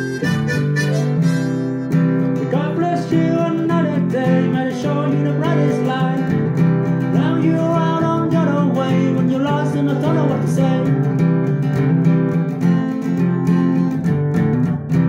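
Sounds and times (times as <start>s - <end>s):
pitch-bending lead melody: 0.0s - 2.5s
strummed acoustic guitar: 0.0s - 15.0s.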